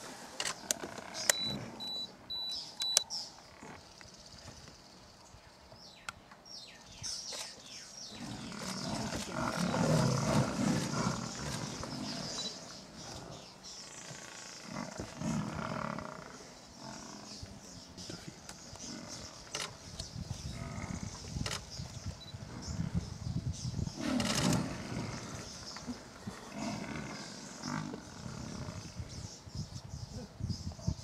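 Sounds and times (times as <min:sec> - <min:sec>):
sharp clicks: 0:02.8 - 0:03.1
lion growling and snarling: 0:08.1 - 0:17.4, 0:20.5 - 0:21.2, 0:23.9 - 0:29.0.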